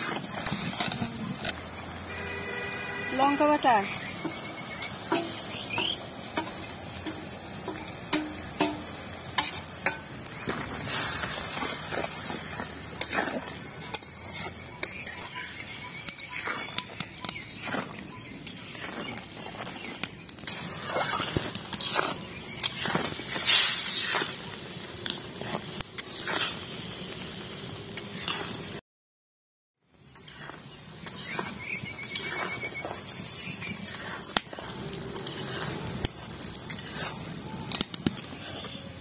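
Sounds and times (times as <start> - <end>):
syrup bubbling and sizzling: 0.0 - 28.8, 29.8 - 39.0
spatula scraping metal pan: 3.1 - 17.8, 20.5 - 24.4, 25.0 - 26.6, 30.1 - 38.8.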